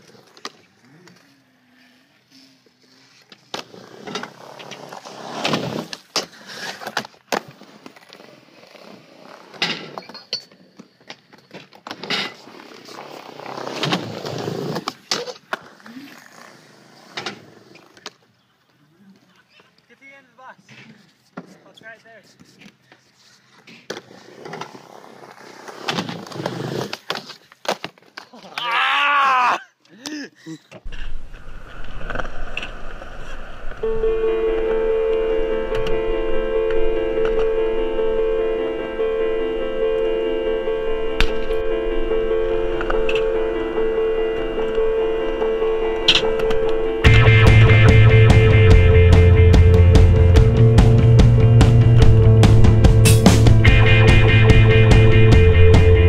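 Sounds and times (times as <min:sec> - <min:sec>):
skateboard wheels rolling on concrete: 0:00.0 - 0:28.7, 0:30.7 - 0:56.0
skateboard scraping along ledge: 0:02.2 - 0:18.2, 0:22.2 - 0:28.2
skateboard clacking: 0:09.4 - 0:18.3, 0:23.5 - 0:28.4, 0:33.8 - 0:47.1.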